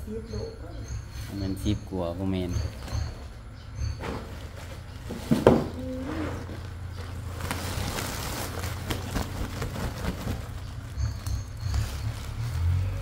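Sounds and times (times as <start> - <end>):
small knocks: 3.8 - 5.8
sack rustling: 4.3 - 12.9.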